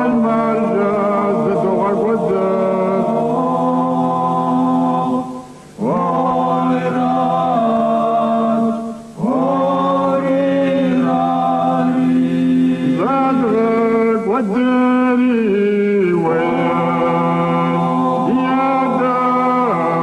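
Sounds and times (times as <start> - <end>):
man singing lead melody: 0.0 - 12.2, 12.8 - 20.0
men singing low drone: 0.0 - 20.0
singer breathing: 5.4 - 5.8.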